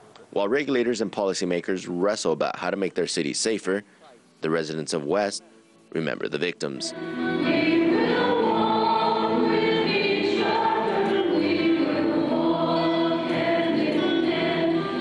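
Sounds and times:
choir singing a hymn: 6.8s - 15.0s.

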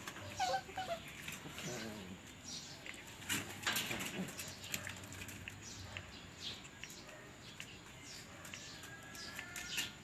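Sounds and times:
puppies squeaking: 0.0s - 1.9s.

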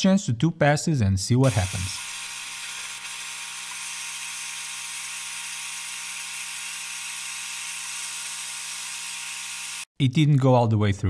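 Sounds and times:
laser engraver whirring hiss: 1.4s - 9.9s.

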